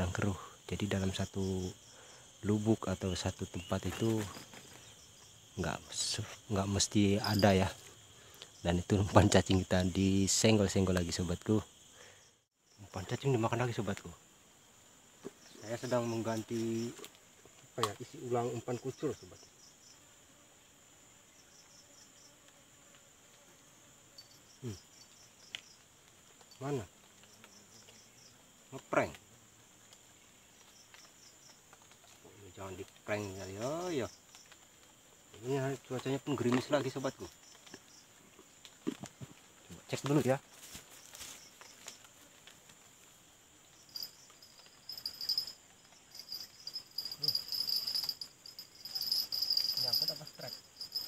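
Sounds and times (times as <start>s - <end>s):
crickets trilling: 0.0s - 51.0s
insects chirring: 0.0s - 51.0s.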